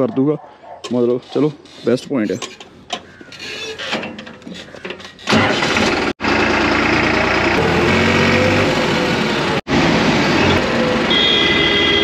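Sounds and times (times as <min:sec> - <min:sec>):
tractor diesel engine running: 0:05.2 - 0:12.0.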